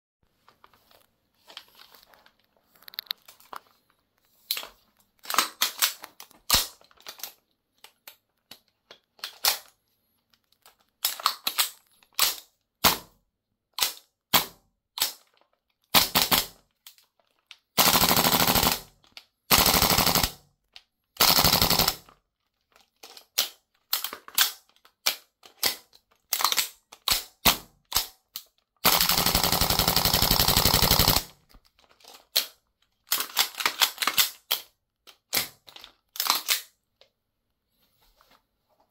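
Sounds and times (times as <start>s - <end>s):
airsoft rifle firing: 17.8s - 18.9s, 19.5s - 20.4s, 21.2s - 22.0s, 28.8s - 31.3s.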